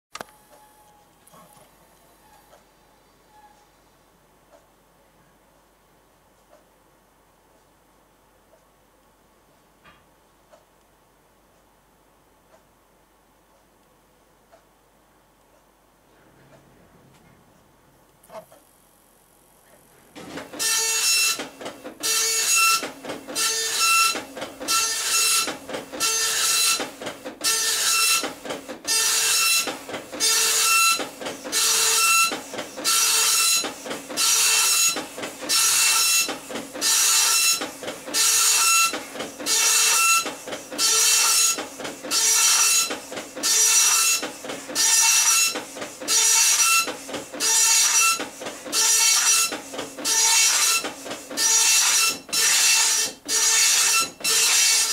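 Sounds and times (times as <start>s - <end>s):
dot matrix printer printing: 20.2s - 54.9s.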